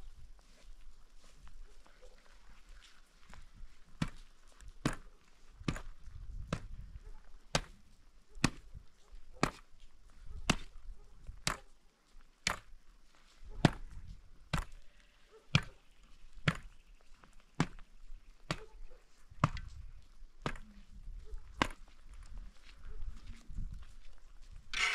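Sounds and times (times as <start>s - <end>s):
shovel scraping the ground: 24.6s - 24.9s.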